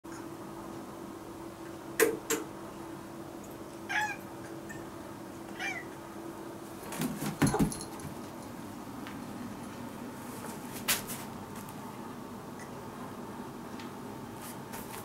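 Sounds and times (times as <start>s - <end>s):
steady low hum: 0.1s - 15.0s
cat meowing: 3.9s - 4.2s, 5.5s - 6.0s.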